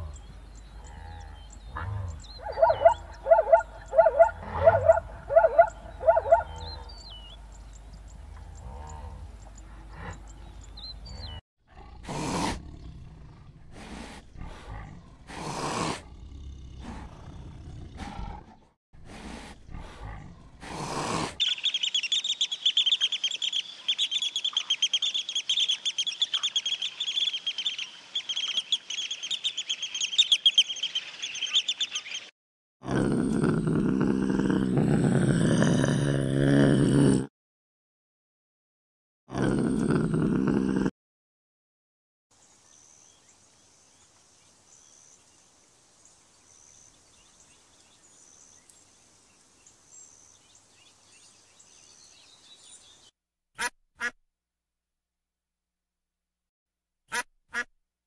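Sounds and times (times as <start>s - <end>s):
small birds chirping: 0.0s - 11.4s, 21.4s - 32.3s, 42.4s - 53.1s
tiger roaring and growling: 0.8s - 7.1s, 11.1s - 21.4s, 32.8s - 37.3s, 39.3s - 40.9s
zebra barking: 1.7s - 7.0s.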